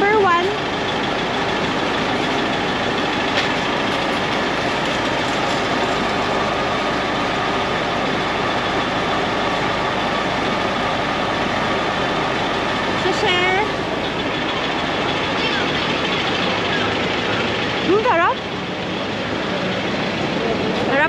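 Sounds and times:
soft-serve machine running: 0:00.0 - 0:21.0
van engine idling: 0:00.0 - 0:21.0.

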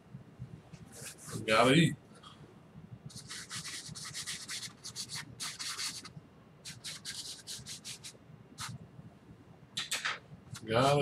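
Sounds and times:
paintbrush scrubbing on canvas: 0:03.1 - 0:08.8.

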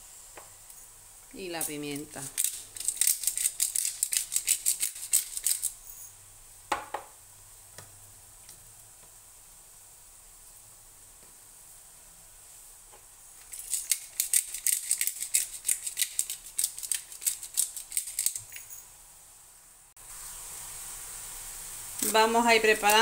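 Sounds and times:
pepper mill grinding clicks: 0:01.6 - 0:05.8, 0:13.4 - 0:18.6.

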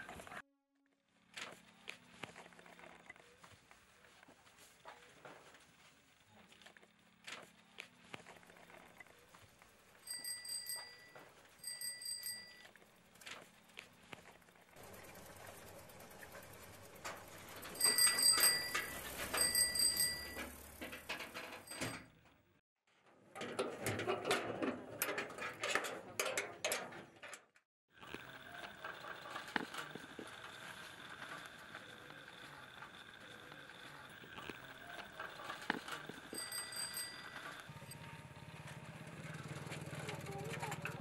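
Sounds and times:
bicycle bell trills: 0:09.9 - 0:12.8, 0:17.0 - 0:20.8, 0:21.4 - 0:22.1, 0:34.8 - 0:38.1.

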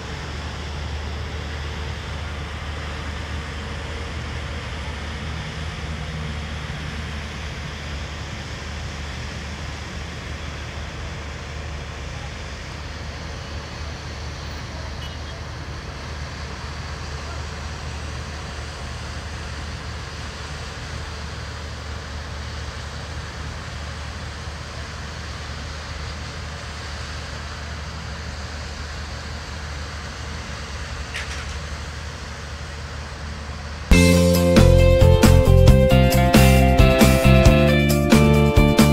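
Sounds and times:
distant city traffic hum: 0:00.0 - 0:38.9
loud guitar music: 0:33.9 - 0:38.9.

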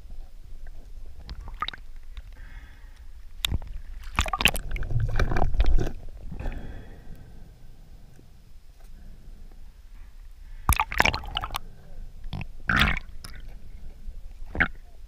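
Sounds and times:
underwater splashing and bubbling: 0:01.2 - 0:02.2, 0:03.5 - 0:06.7, 0:10.6 - 0:13.8.

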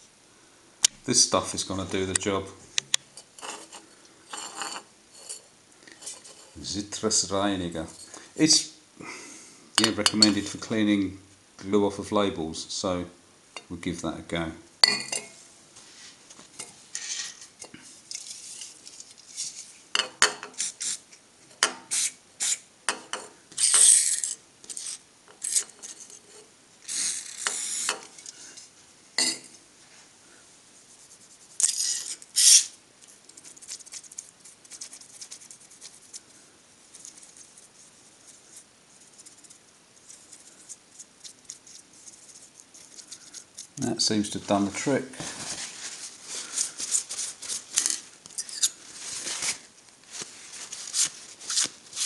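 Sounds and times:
tissue rubbing and crackling: 0:44.4 - 0:48.1, 0:48.8 - 0:52.0.

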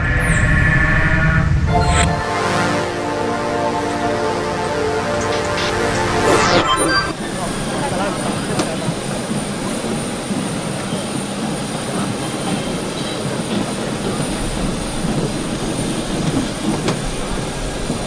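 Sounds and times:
high whine: 0:00.0 - 0:08.6
jet aircraft roar: 0:00.0 - 0:10.8.

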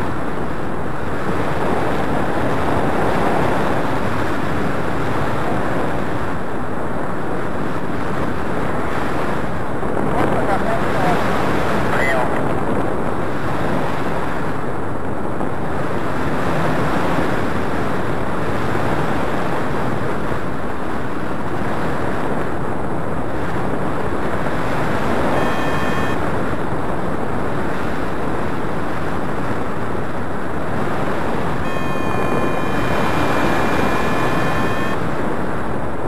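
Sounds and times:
wind buffeting microphone: 0:00.0 - 0:36.0
thin electronic tone: 0:25.2 - 0:26.2, 0:31.6 - 0:35.1.

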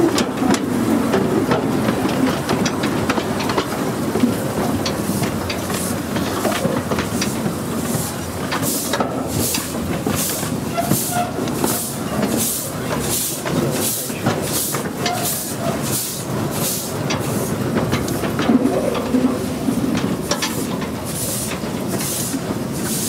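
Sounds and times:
steam locomotive chuffing: 0:00.0 - 0:23.0
wheels clicking over rail joints: 0:00.0 - 0:23.0.

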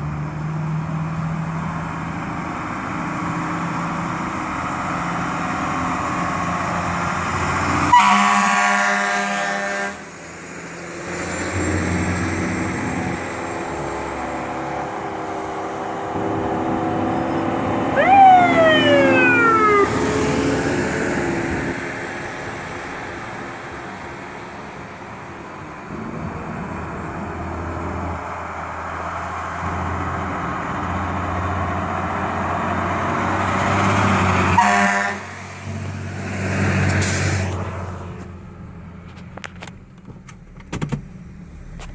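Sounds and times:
diesel engine droning: 0:00.0 - 0:41.9
air horn blast: 0:07.9 - 0:10.1, 0:34.5 - 0:35.4
fire siren winding down: 0:16.1 - 0:22.1.

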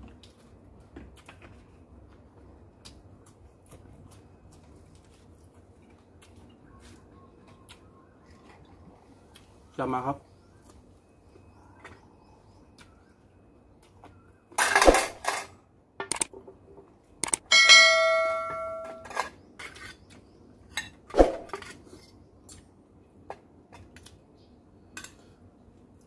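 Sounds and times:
dish ringing: 0:17.4 - 0:19.2.

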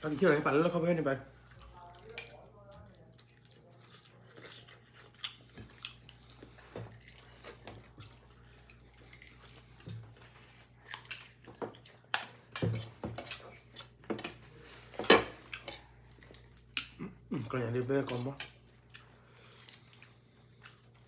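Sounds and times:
chewing and crunching: 0:01.3 - 0:21.0.

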